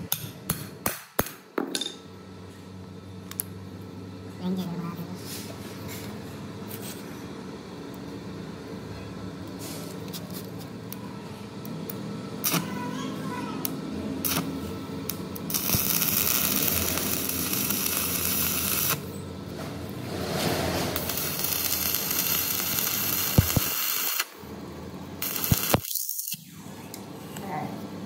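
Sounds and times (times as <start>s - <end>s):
machine running: 11.3s - 27.3s.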